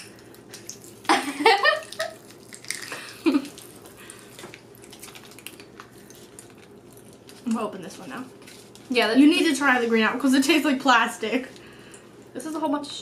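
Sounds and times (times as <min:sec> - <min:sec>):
popping candy crackling: 0:00.0 - 0:09.7
person giggling: 0:01.1 - 0:02.2, 0:02.9 - 0:03.6.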